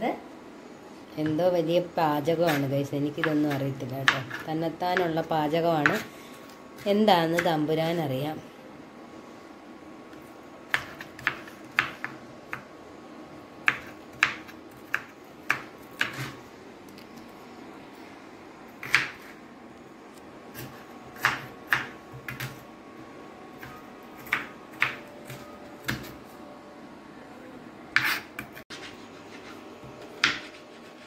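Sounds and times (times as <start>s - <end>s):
knife chopping on wooden board: 10.7s - 12.6s, 18.8s - 19.3s, 20.6s - 22.6s, 28.0s - 28.6s, 29.8s - 30.6s.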